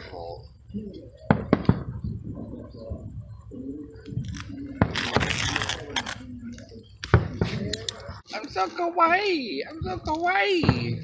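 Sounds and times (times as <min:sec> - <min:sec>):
low murmured voices: 0:00.0 - 0:08.8
firework bangs: 0:01.3 - 0:02.2.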